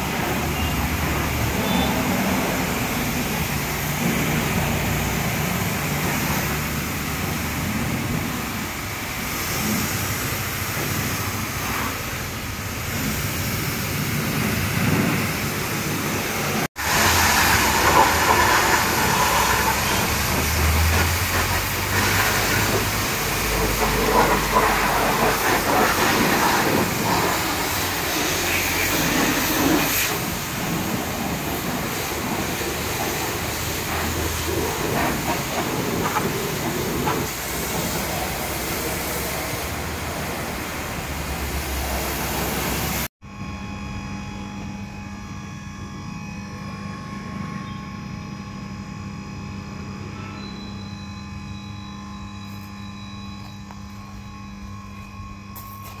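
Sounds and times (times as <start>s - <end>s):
pressure washer spraying water: 0.0s - 43.1s.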